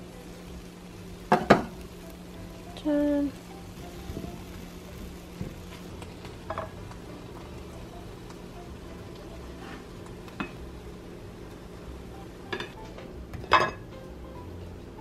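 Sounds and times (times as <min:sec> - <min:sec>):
faint steady hum: 0:00.0 - 0:15.0
spatula and plate clinking: 0:06.5 - 0:06.8.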